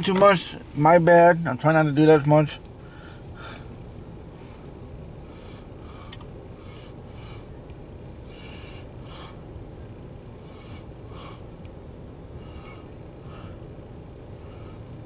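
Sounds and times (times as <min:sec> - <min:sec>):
low outdoor rumble: 0:00.0 - 0:15.0
breathing close to microphone: 0:02.8 - 0:07.6, 0:08.2 - 0:09.5, 0:10.3 - 0:11.6, 0:12.3 - 0:15.0.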